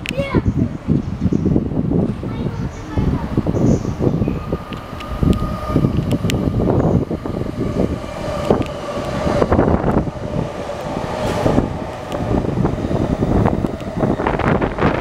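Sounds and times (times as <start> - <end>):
electric train passing: 0.8 - 15.0
wheels clacking over rail joints: 2.0 - 15.0.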